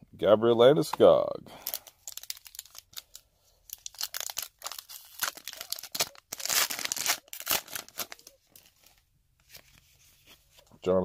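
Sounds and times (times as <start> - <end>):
foil wrapper tearing: 1.6 - 8.6
foil wrapper crinkling: 1.6 - 9.0.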